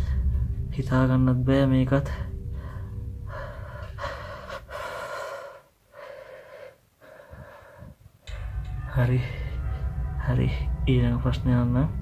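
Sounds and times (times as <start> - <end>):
person breathing heavily: 0.0 - 0.5, 2.2 - 8.2.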